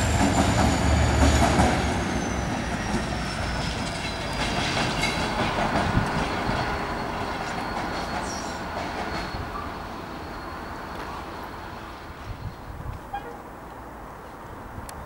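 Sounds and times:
diesel locomotive running: 0.0s - 12.3s
wheels clicking over rail joints: 2.6s - 9.7s.

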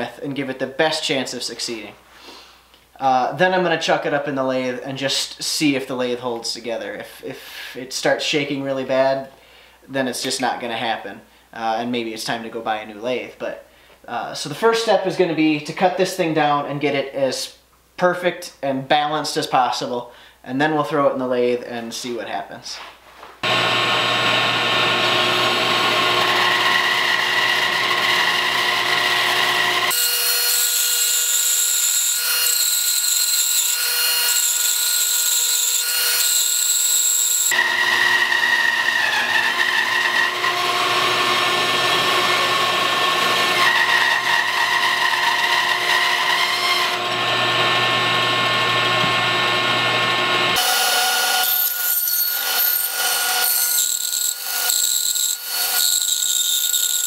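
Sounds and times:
bandsaw cutting wood: 23.4s - 57.0s.

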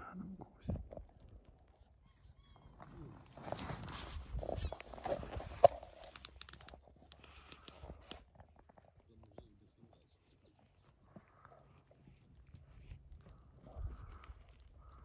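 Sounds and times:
rustling: 1.0s - 9.1s.

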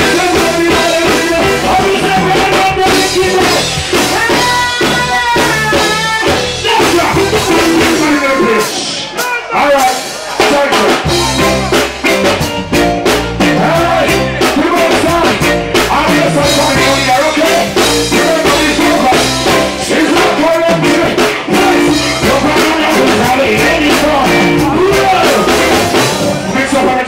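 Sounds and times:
male singer: 0.0s - 11.8s, 13.2s - 27.0s
reggae band playing: 0.0s - 27.0s.

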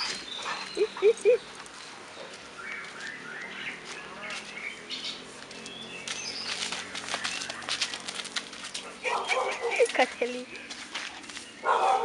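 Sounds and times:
small birds chirping: 0.0s - 12.0s
sharp clicks and scuffs: 5.4s - 11.6s.

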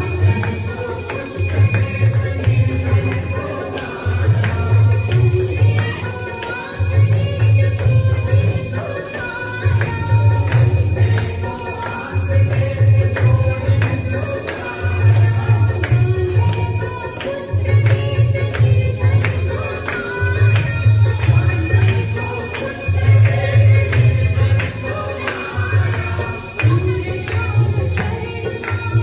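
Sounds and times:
bells ringing: 0.0s - 29.0s.

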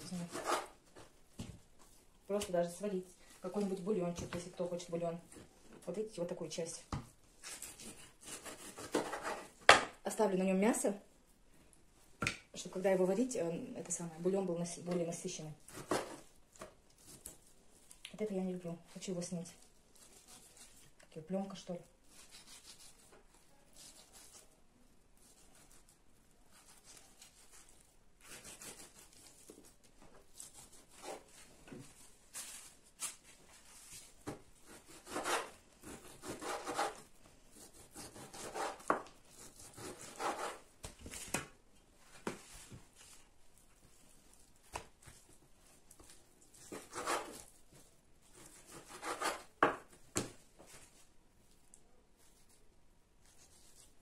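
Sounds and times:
knife cutting and scraping meat: 0.0s - 0.8s, 7.4s - 9.6s, 20.0s - 20.9s, 22.0s - 24.5s, 25.2s - 29.7s, 30.4s - 31.2s, 34.6s - 40.7s, 46.0s - 49.6s.

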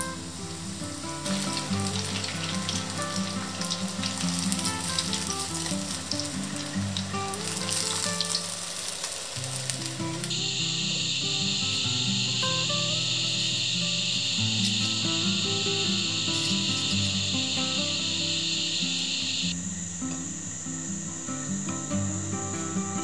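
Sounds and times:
food deep-frying in hot oil: 0.0s - 10.4s
guitar music: 0.0s - 23.0s.

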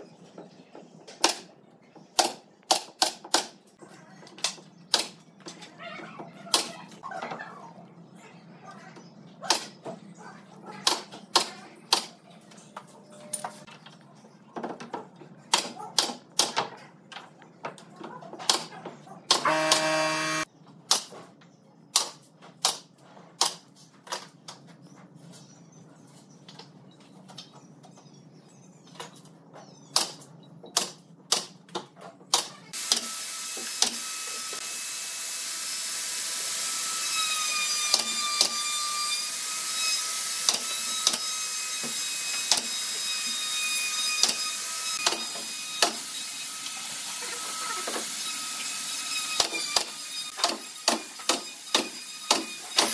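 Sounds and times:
power tool whining: 19.4s - 20.5s.

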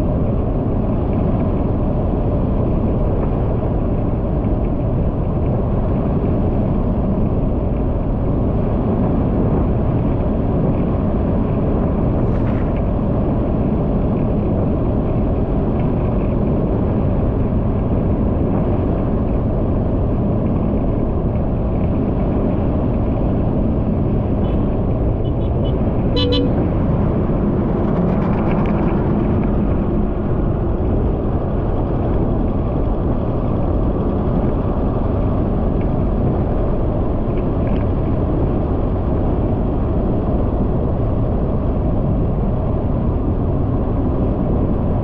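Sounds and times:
road rumble: 0.0s - 45.0s
wind: 0.0s - 45.0s
vehicle horn toot: 25.2s - 26.7s.

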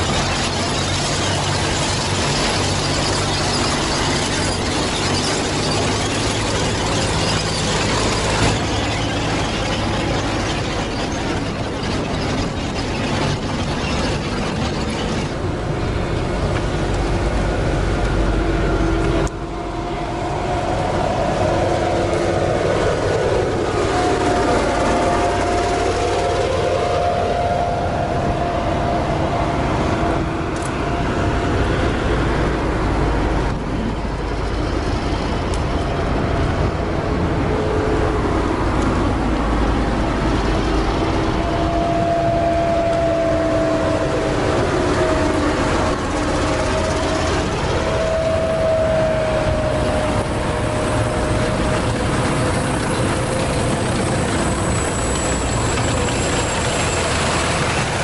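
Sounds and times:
tank tracks clattering on asphalt: 0.0s - 19.5s, 49.5s - 58.0s
heavy diesel engines with whine: 0.0s - 58.0s.

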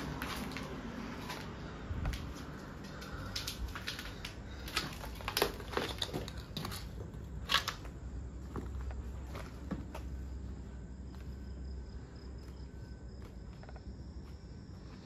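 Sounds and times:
footsteps crunching on rubble: 0.0s - 10.2s.

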